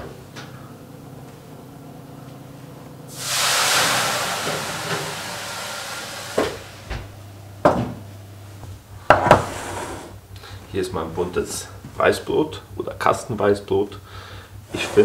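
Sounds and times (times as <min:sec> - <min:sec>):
water hissing into steam: 0:03.1 - 0:07.1.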